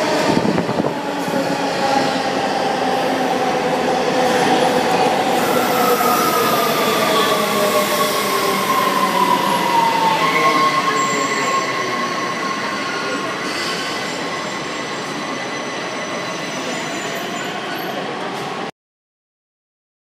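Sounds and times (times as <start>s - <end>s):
train wheels squealing: 5.3s - 18.2s.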